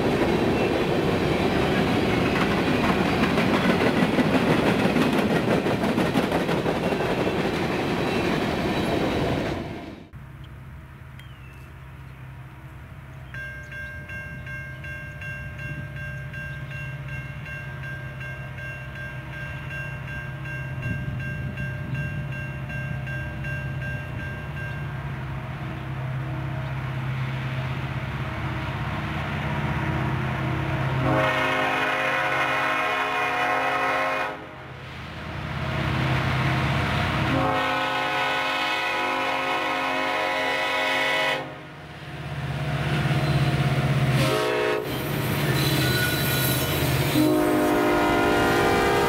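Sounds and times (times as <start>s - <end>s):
diesel locomotive engine rumble: 0.0s - 49.0s
train air horn blast: 31.0s - 34.8s, 37.2s - 41.7s, 44.1s - 49.0s.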